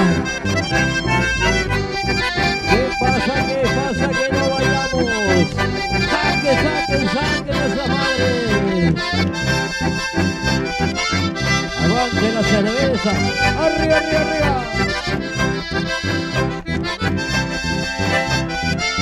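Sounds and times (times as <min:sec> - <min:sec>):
accordions playing melody: 0:00.0 - 0:19.0
electric bass: 0:00.0 - 0:19.0.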